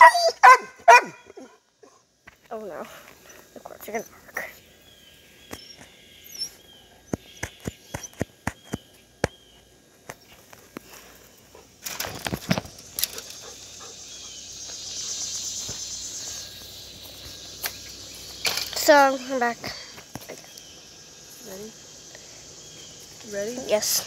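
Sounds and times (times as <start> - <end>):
high insect buzz: 10.2 - 24.0.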